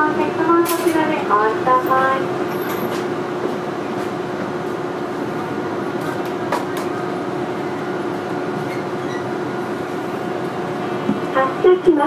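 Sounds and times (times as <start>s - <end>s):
tram equipment humming: 0.0s - 12.0s.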